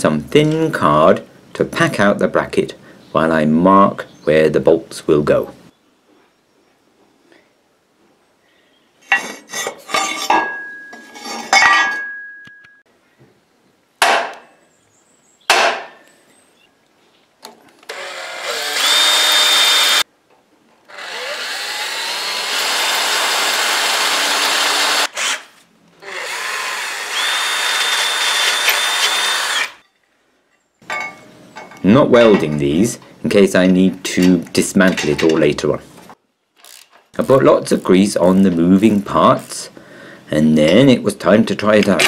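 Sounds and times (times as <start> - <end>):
metal knocks and clinks: 9.1 - 12.8, 29.8 - 32.6
cordless drill boring through steel: 17.9 - 20.0, 20.9 - 29.8.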